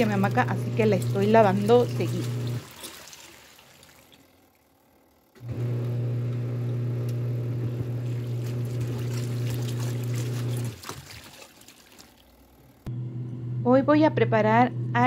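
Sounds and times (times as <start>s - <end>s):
water sloshing: 0.0s - 4.6s, 8.0s - 12.6s
washing machine motor hum: 0.0s - 15.0s.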